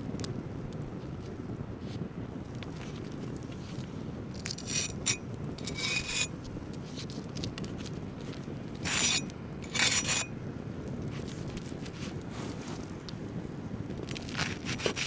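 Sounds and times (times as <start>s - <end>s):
crisp crust crunching: 14.0s - 15.0s.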